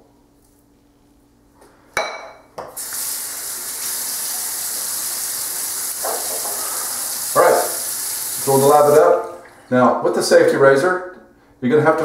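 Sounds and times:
tap water running into sink: 0:02.8 - 0:09.3.

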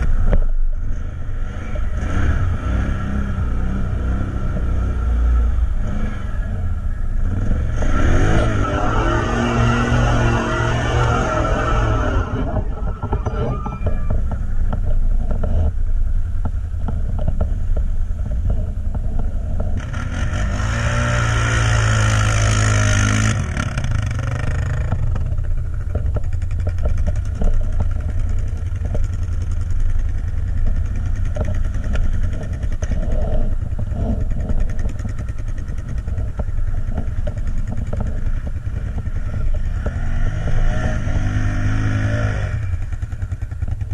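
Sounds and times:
atv engine revving: 0:00.0 - 0:43.9
steady low rumble: 0:00.0 - 0:43.9.

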